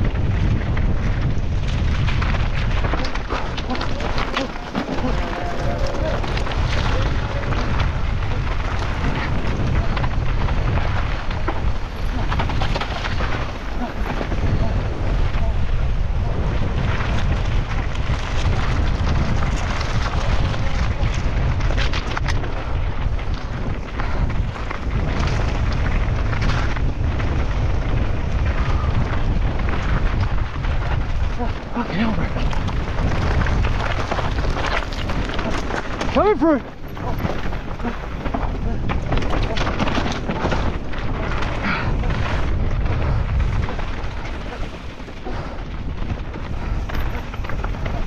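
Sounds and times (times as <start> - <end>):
mountain bike rattling: 0.0 - 48.0
tyres on rough ground: 0.0 - 48.0
wind rumbling on microphone: 0.0 - 48.0
bike clicks and knocks: 36.8 - 48.0.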